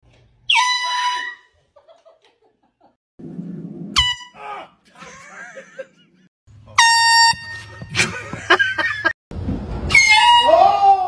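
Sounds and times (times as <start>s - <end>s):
air horn blast: 6.7s - 8.0s.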